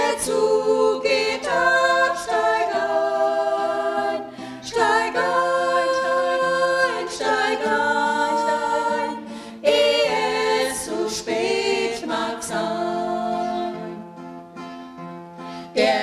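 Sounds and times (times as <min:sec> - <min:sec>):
vocal ensemble singing in harmony: 0:00.0 - 0:14.2, 0:15.6 - 0:16.0
acoustic guitar: 0:00.0 - 0:16.0.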